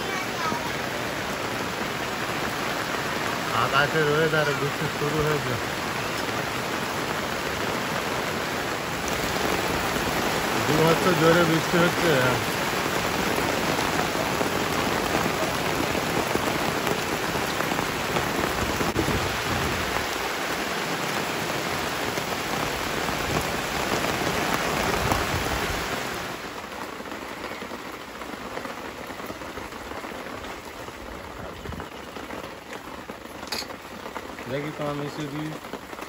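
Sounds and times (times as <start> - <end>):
heavy rain on ground and plants: 0.0 - 36.0.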